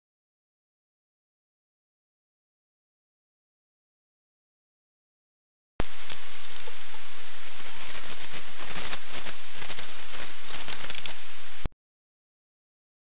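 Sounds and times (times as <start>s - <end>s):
aluminium foil crinkling: 5.8s - 11.4s.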